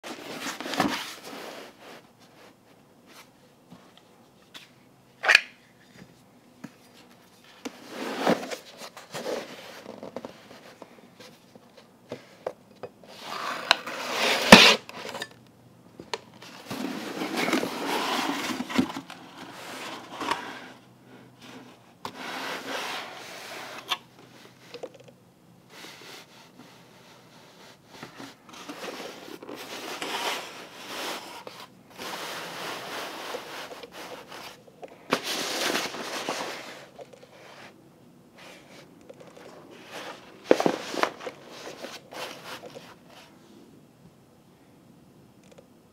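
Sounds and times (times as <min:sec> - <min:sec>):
cardboard scraping and rubbing: 0:00.0 - 0:03.3, 0:07.7 - 0:10.9, 0:13.1 - 0:15.0, 0:16.5 - 0:20.8, 0:21.4 - 0:24.0, 0:27.4 - 0:37.8, 0:39.4 - 0:43.4.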